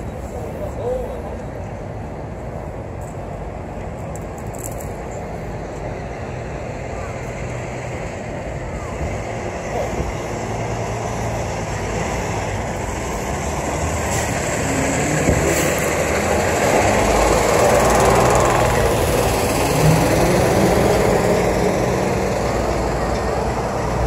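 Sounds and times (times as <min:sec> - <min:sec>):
street traffic rumble: 0:00.0 - 0:24.0
heavy vehicle passing: 0:05.5 - 0:24.0.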